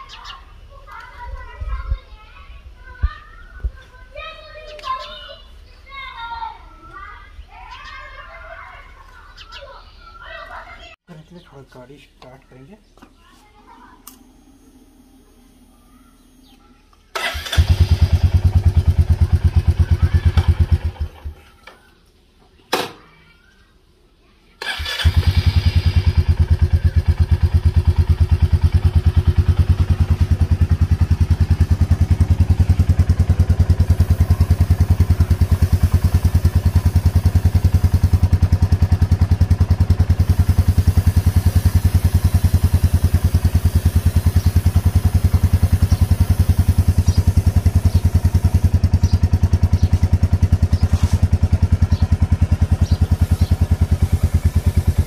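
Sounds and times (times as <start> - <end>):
motorcycle engine idling: 13.6 - 21.6, 24.6 - 55.0.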